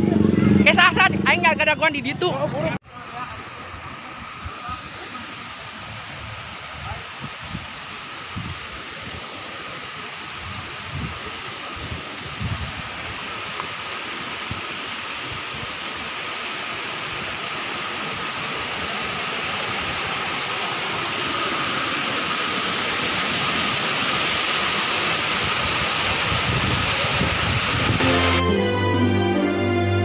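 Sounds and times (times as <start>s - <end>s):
flood water and mud rushing: 2.8s - 28.6s.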